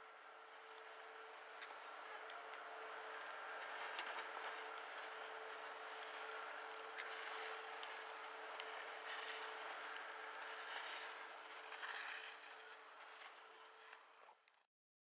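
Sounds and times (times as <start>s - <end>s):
faint steady hum: 0.0s - 14.6s
skis scraping on snow: 3.6s - 14.4s.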